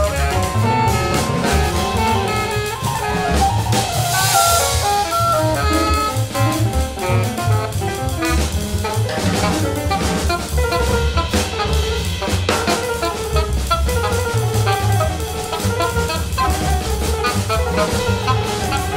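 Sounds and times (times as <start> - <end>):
alto saxophone: 0.0 - 18.9
bass: 0.0 - 18.9
drum kit: 0.0 - 18.9
piano: 0.0 - 18.9.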